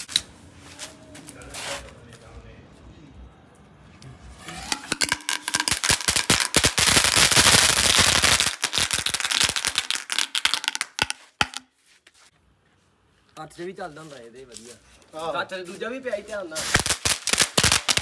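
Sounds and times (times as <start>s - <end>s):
firework crackling: 4.3s - 11.6s, 16.6s - 18.0s.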